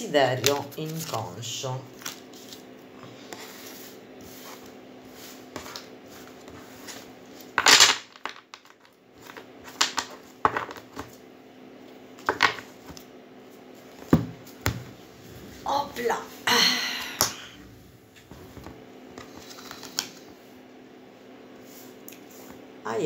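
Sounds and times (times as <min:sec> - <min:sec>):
cards shuffled by hand: 0:01.9 - 0:02.6, 0:19.2 - 0:20.3.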